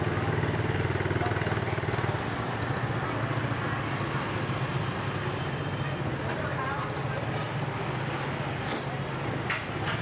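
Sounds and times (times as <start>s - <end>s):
street traffic noise: 0.0s - 10.0s.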